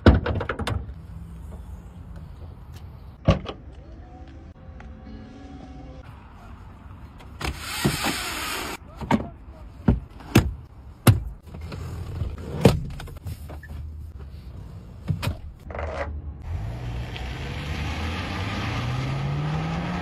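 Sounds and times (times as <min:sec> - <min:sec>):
car engine pulling away: 0:16.4 - 0:20.0.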